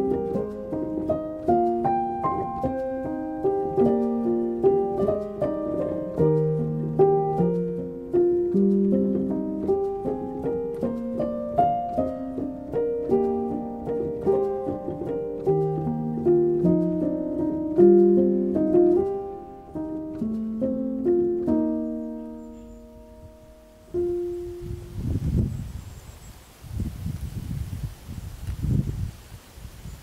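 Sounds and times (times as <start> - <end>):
slow gentle piano melody: 0.0 - 26.9.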